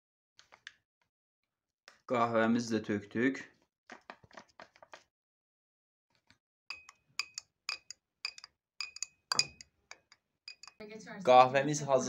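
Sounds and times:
spoon clinking in a cup: 6.7 - 10.8.

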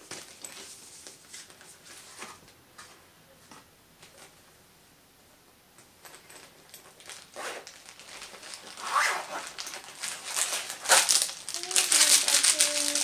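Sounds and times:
zipper being pulled open: 7.3 - 7.6, 8.8 - 9.6.

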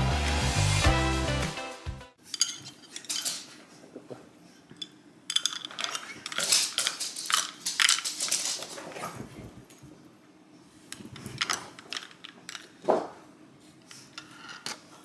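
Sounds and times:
cutlery and dishes clinking: 2.2 - 3.7.

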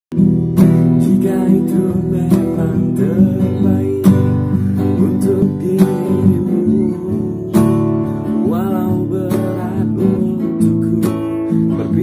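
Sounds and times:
acoustic guitar strumming: 0.1 - 12.0
man singing a pop ballad: 0.9 - 12.0.

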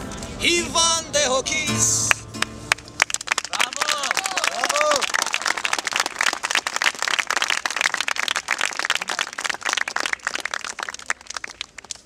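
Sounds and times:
people clapping: 2.1 - 12.0.

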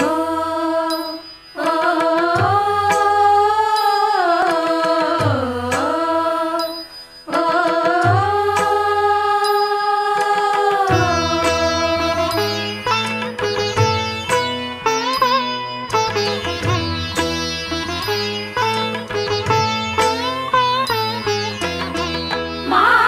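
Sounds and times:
woman singing: 0.0 - 12.9, 22.6 - 23.0
percussion: 0.0 - 23.0.

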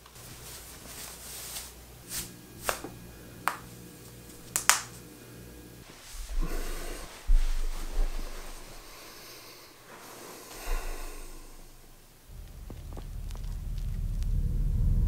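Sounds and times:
body settling onto bedding: 5.9 - 9.1.

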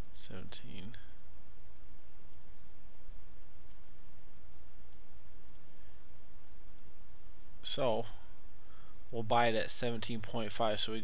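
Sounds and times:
low hum and hiss: 0.0 - 11.0
computer mouse clicks: 2.2 - 2.5, 3.6 - 3.8, 4.8 - 5.7, 6.6 - 6.9.

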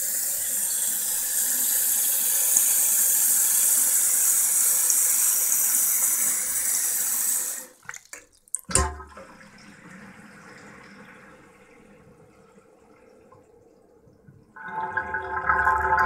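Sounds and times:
water tap running into basin: 0.0 - 11.4, 14.6 - 16.0.

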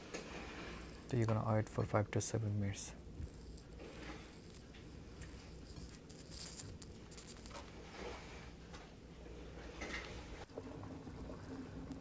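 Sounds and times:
water heating in saucepan: 7.0 - 12.0.

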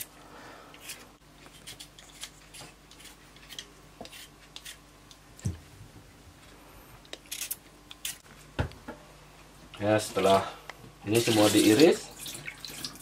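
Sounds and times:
peeler scraping potato skin: 0.8 - 4.9, 7.1 - 8.3.

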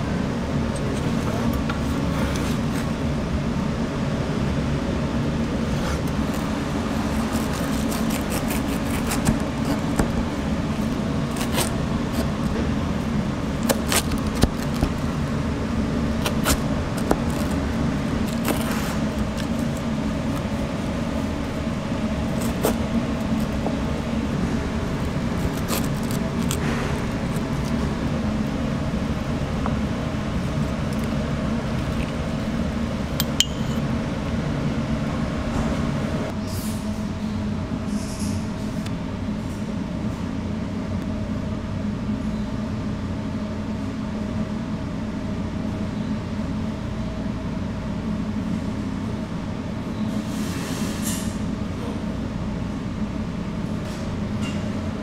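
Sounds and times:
kitchen machine hum: 0.0 - 55.0
utensils clinking and tapping: 33.2 - 33.8.

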